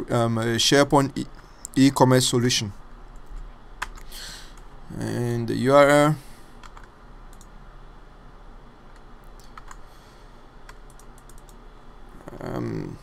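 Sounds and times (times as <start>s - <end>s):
mouse clicks: 10.7s - 11.6s.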